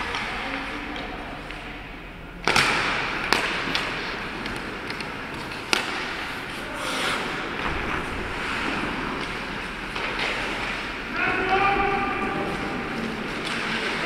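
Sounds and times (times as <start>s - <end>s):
sticks cracking against puck: 2.4s - 6.2s
hockey sticks clattering: 2.4s - 7.7s, 8.6s - 14.0s
skates scraping on ice: 4.4s - 7.6s.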